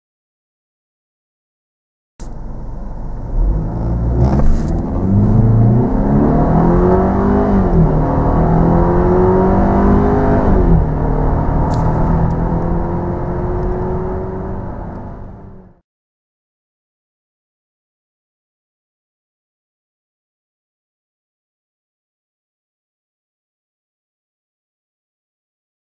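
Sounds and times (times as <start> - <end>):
gear upshifts: 2.2 - 15.7
car engine accelerating: 2.2 - 15.8.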